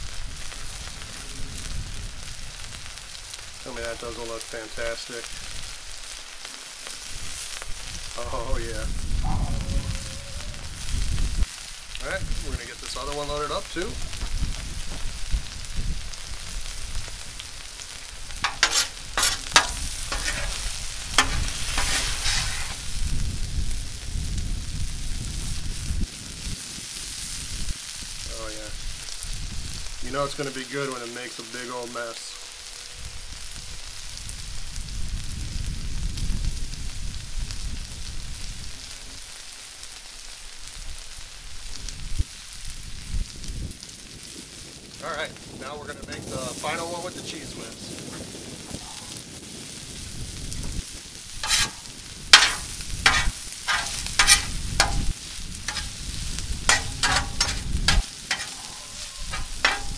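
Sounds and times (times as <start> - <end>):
steak sizzling on a griddle: 0.0 - 59.9
metal spatula scraping griddle: 18.3 - 23.0, 51.4 - 59.9.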